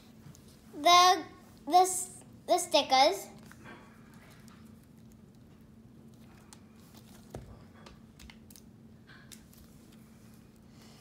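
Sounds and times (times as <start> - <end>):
wrapping rustling and crinkling: 3.4 - 8.7.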